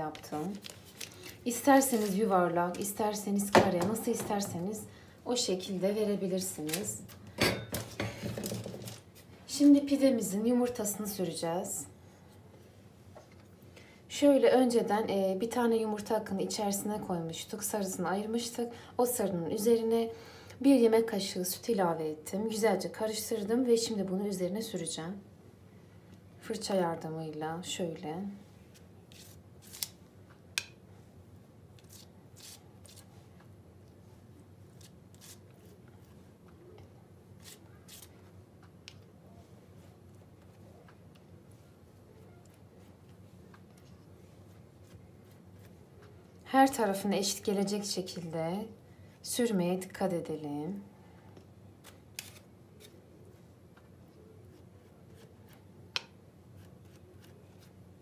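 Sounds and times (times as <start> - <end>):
pastry brush on dough: 34.7 - 36.4, 41.4 - 46.3.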